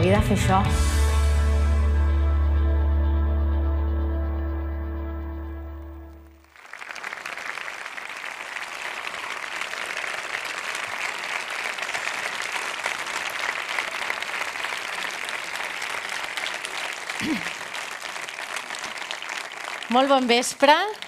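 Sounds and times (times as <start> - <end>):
music track: 0.0 - 6.5
audience applauding: 5.4 - 21.0.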